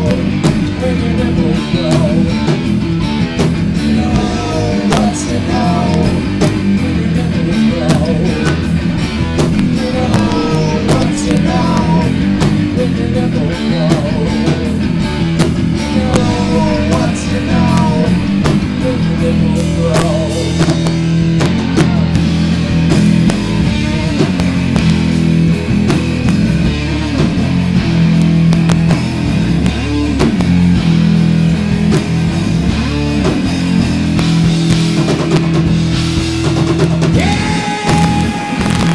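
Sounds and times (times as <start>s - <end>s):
electric guitar: 0.0s - 38.9s
rock band playing loudly: 0.0s - 38.9s
drum kit hits: 1.7s - 6.9s, 13.9s - 38.9s.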